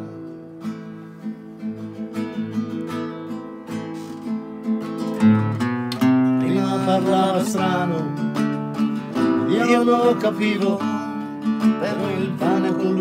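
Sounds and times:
nylon-string guitar strummed: 0.0 - 13.0
man singing: 6.3 - 8.4, 9.1 - 13.0.

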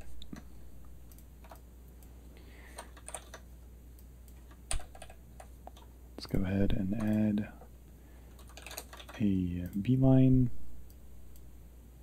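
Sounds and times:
faint low hum: 0.0 - 12.0
computer keyboard keystrokes: 1.1 - 1.7, 2.7 - 3.5, 4.3 - 5.9, 6.9 - 7.3, 8.3 - 9.9.

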